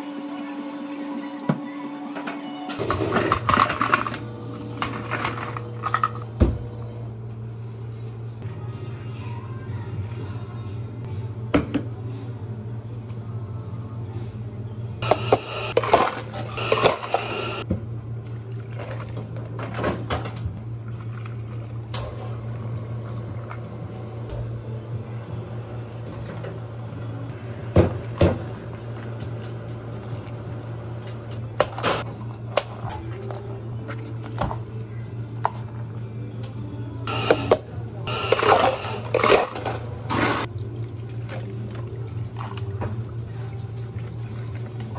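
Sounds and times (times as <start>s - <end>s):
low hum of cafe equipment: 0.0s - 44.9s
ice cubes clattering into plastic cups: 2.8s - 6.2s, 15.1s - 17.6s, 37.2s - 39.9s.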